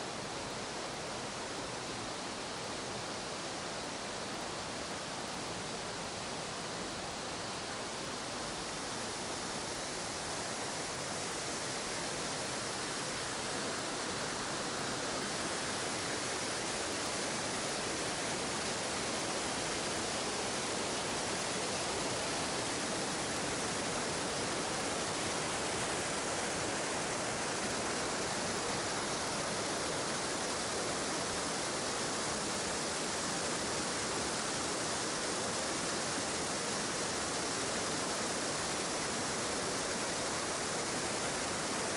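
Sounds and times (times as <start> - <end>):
stream rushing over rocks: 0.0 - 41.9.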